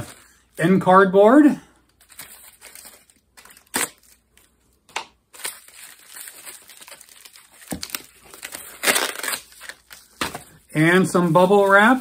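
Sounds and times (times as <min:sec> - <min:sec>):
packaging rustling and crinkling: 0:01.9 - 0:04.5, 0:05.3 - 0:10.6
cardboard packaging crackling: 0:05.3 - 0:10.6.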